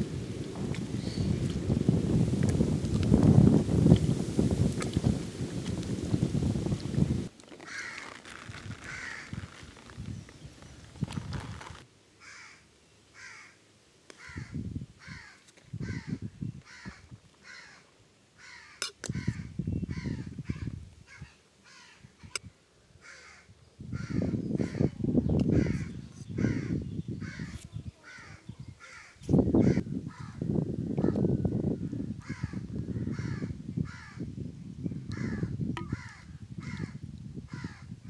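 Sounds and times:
crow cawing: 0:07.6 - 0:09.6, 0:12.2 - 0:12.6, 0:13.2 - 0:13.6, 0:14.2 - 0:20.3, 0:21.1 - 0:22.0, 0:23.0 - 0:24.9, 0:25.6 - 0:30.4, 0:32.2 - 0:34.2, 0:35.1 - 0:37.9.

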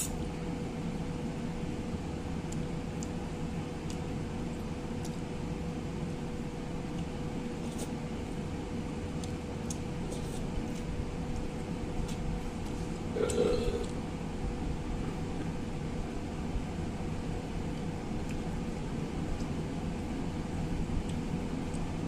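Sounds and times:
steady mechanical hum: 0:00.0 - 0:22.0
person eating with fingers: 0:09.2 - 0:14.0.

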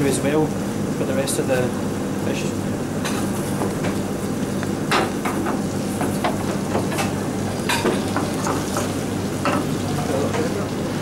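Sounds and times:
kitchen extraction hum: 0:00.0 - 0:11.0
food sizzling in pans: 0:02.8 - 0:10.8.

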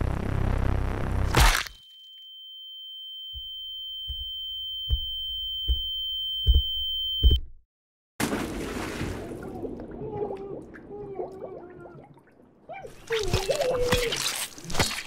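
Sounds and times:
high-pitched ringing tone: 0:01.7 - 0:07.4
dull low heartbeat thuds: 0:04.1 - 0:07.6.

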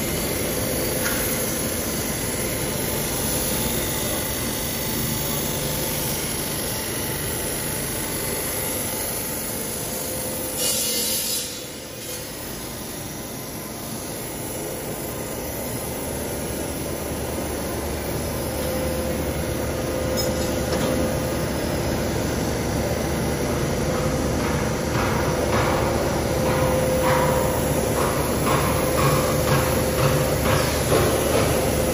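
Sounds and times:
tube mill machinery drone: 0:00.0 - 0:31.9
steady hum: 0:11.6 - 0:31.9.

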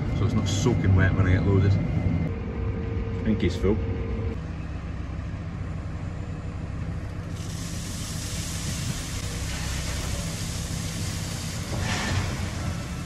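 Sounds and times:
diesel engine humming: 0:00.0 - 0:13.0
wood chips pouring into steel trailer: 0:07.3 - 0:13.0.

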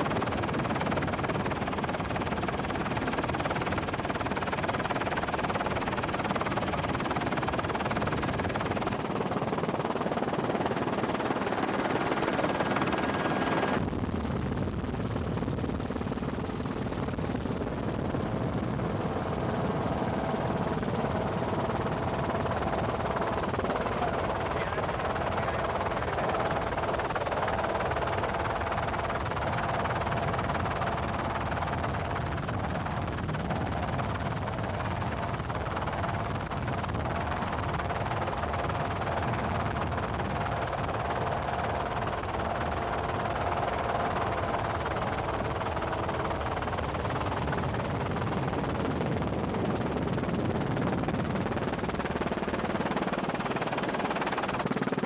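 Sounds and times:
helicopter cabin noise: 0:00.0 - 0:14.4, 0:15.1 - 0:55.0
faint steady whine: 0:00.0 - 0:55.0.

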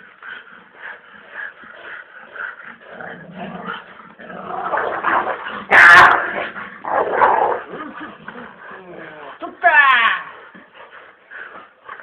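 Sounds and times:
puppies growling: 0:00.0 - 0:09.4.

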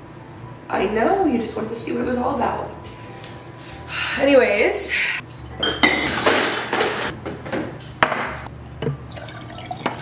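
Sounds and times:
water running: 0:09.1 - 0:10.0.

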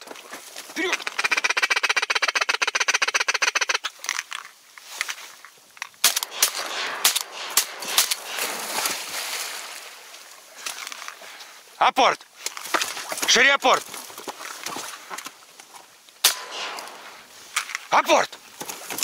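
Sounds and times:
reeds rustling: 0:03.9 - 0:19.0.

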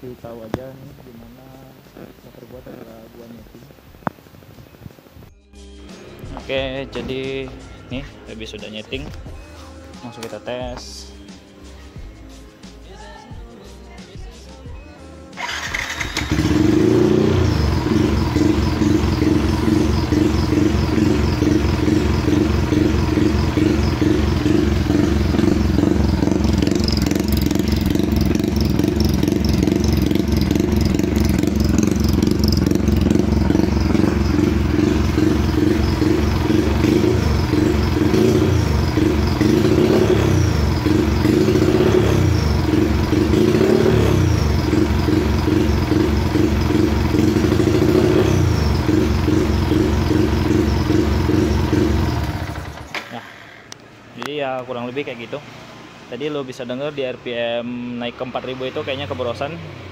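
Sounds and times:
motorcycle engine revving: 0:15.4 - 0:53.8.

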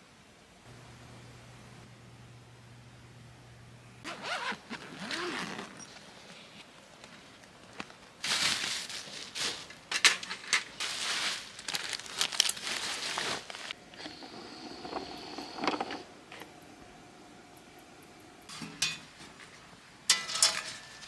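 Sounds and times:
faint steady hum: 0:00.0 - 0:21.0
plastic bag rustling: 0:07.7 - 0:13.8
items clicking and knocking: 0:09.6 - 0:10.8, 0:14.0 - 0:16.6, 0:20.1 - 0:21.0.

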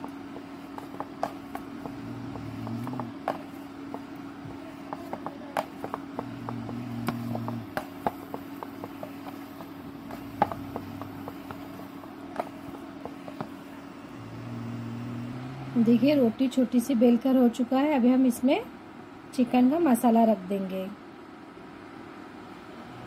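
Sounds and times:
rolling pin rumbling on board: 0:00.0 - 0:15.0
steady low hum: 0:00.0 - 0:23.0.

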